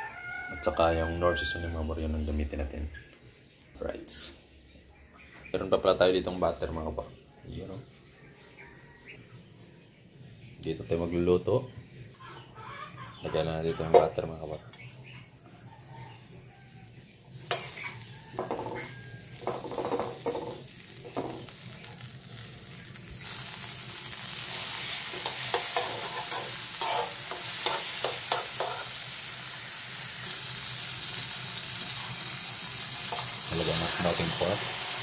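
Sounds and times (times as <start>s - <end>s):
butter sizzling in a pan: 16.2s - 35.0s
metal spoon scraping a pan: 17.4s - 21.2s, 24.5s - 29.0s, 33.0s - 34.0s.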